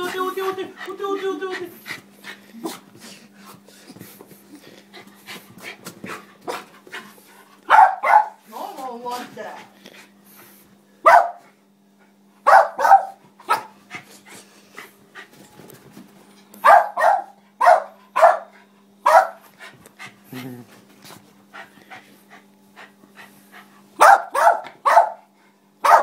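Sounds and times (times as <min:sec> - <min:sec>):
dog barking sharply: 0:07.7 - 0:08.4, 0:11.1 - 0:11.4, 0:12.5 - 0:13.7, 0:16.6 - 0:18.5, 0:19.1 - 0:19.4, 0:24.0 - 0:26.0.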